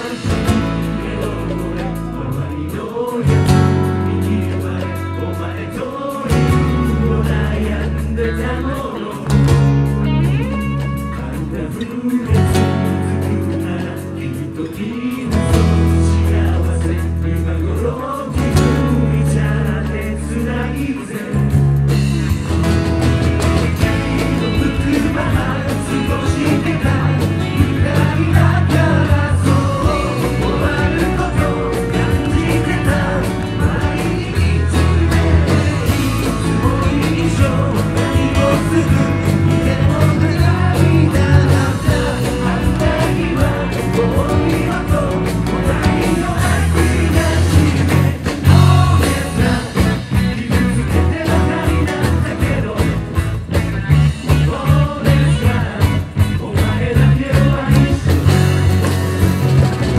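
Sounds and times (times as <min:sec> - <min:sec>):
person singing: 0:00.0 - 0:21.8, 0:23.5 - 0:53.3, 0:54.1 - 0:59.0
live rock band playing: 0:00.0 - 0:59.9.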